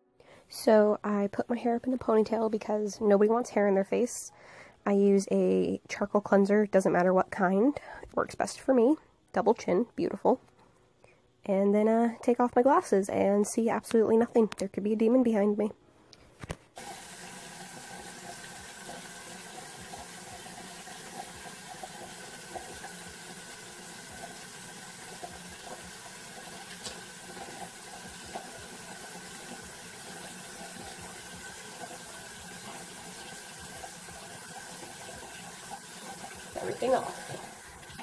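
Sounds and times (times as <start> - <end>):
tap water running: 16.8 - 38.0.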